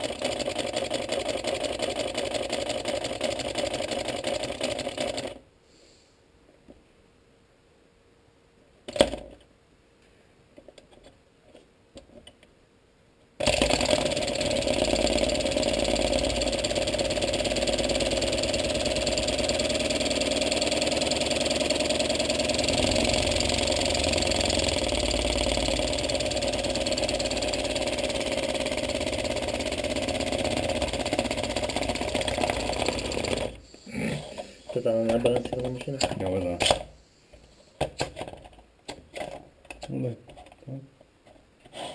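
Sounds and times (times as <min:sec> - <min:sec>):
flywheel knocks and clicks: 0:00.0 - 0:05.4, 0:13.4 - 0:33.6, 0:34.8 - 0:36.8.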